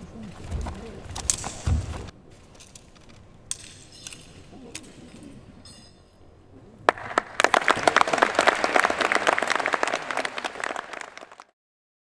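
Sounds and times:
audience applauding: 6.9s - 11.6s.

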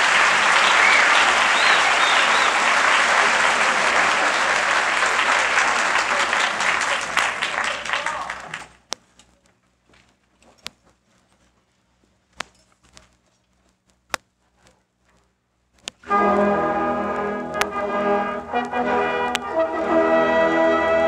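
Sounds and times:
symphonic band brass chords: 0.0s - 7.0s, 16.0s - 21.0s.

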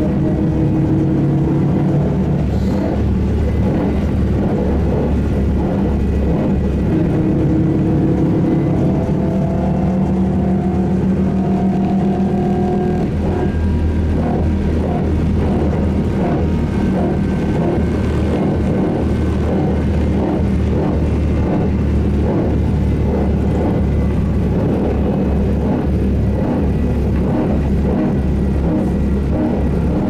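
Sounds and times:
bus motor and road rumble: 0.0s - 30.0s.

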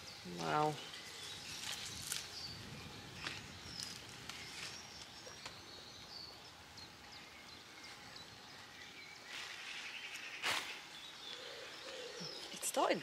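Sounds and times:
rustling hiss: 0.0s - 13.0s.

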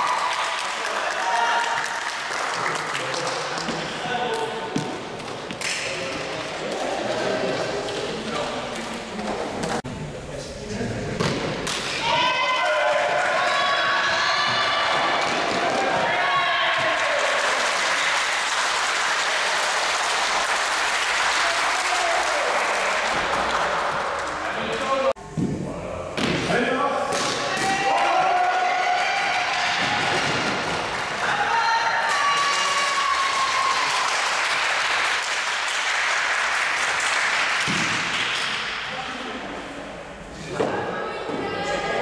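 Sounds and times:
people clapping: 0.0s - 4.5s, 12.4s - 25.0s, 27.6s - 38.8s.

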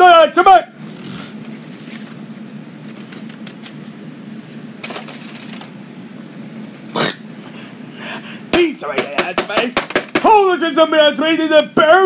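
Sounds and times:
paper and plastic rustling: 1.5s - 5.7s.

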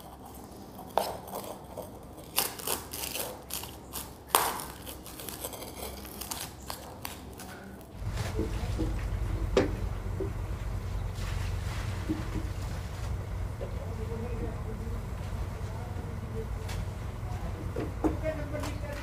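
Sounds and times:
steady low rumble: 8.0s - 19.0s.

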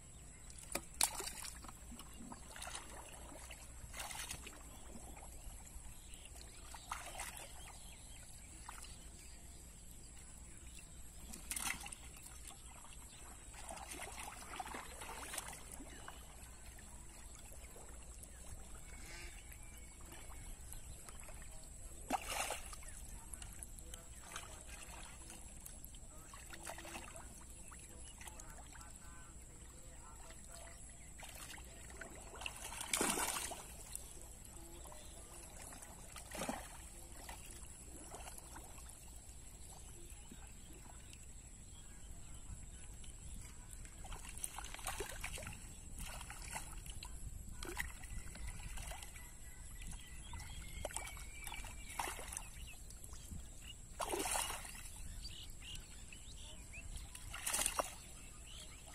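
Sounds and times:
hands splashing in shallow water: 0.6s - 5.0s, 22.0s - 23.0s, 31.2s - 34.1s, 54.0s - 54.9s, 57.2s - 58.1s.

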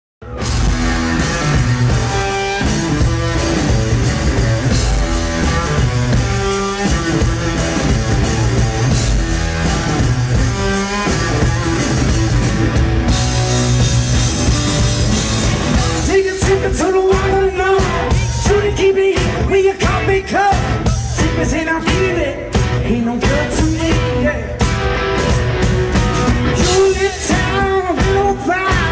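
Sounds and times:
electric guitar riff: 0.2s - 19.5s
drum kit: 0.2s - 28.9s.

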